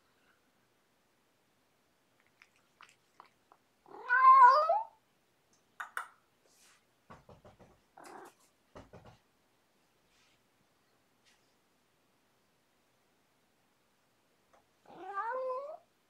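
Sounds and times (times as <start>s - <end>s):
cat meowing: 3.9s - 5.0s, 14.9s - 15.8s
faint clicks and taps: 7.1s - 9.2s.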